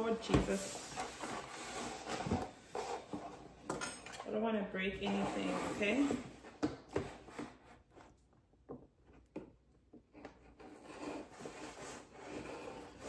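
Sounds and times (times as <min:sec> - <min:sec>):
cardboard box rubbing and scraping: 0:00.5 - 0:03.4, 0:05.0 - 0:06.4, 0:10.6 - 0:13.0.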